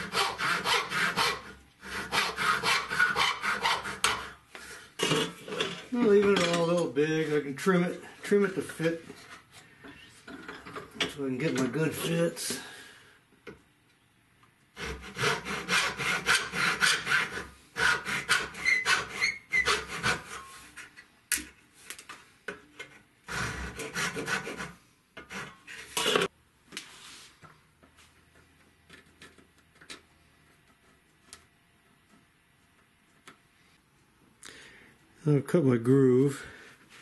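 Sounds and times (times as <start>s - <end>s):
saw rasping through wood: 0.0s - 4.4s, 14.8s - 20.5s, 23.3s - 26.3s.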